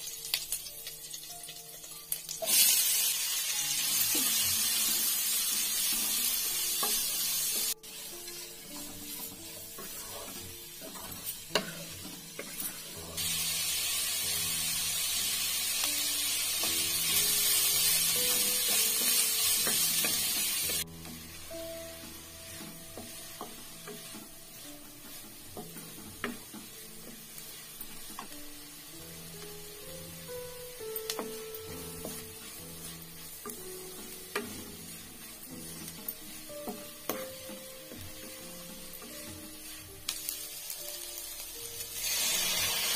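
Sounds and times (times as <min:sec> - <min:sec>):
loud sizzling hiss: 0:00.0 - 0:42.9
onions sizzling in oil: 0:00.0 - 0:42.9
wooden spatula scraping pan: 0:06.0 - 0:13.0, 0:31.1 - 0:40.4.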